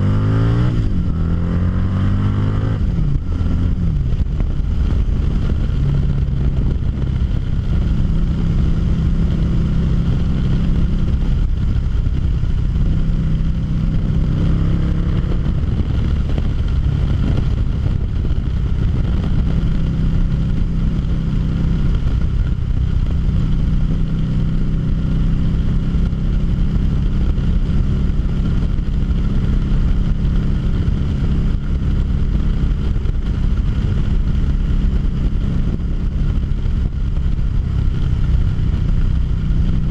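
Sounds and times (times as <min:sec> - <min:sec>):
motorcycle engine cruising: 0:00.0 - 0:39.9
wind noise on microphone: 0:00.0 - 0:39.9.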